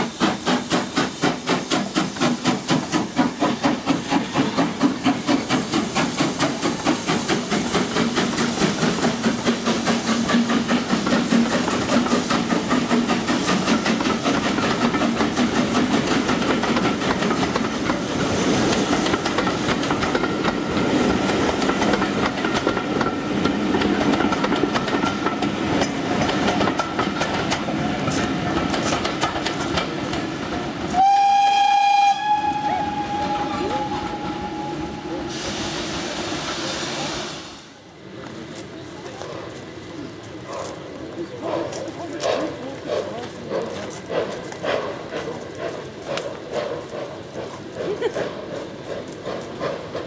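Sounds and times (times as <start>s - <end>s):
train wheels clattering over rails: 0.0s - 34.7s, 38.2s - 50.0s
steam locomotive exhaust beats: 0.0s - 50.0s
steam whistle: 30.9s - 35.8s.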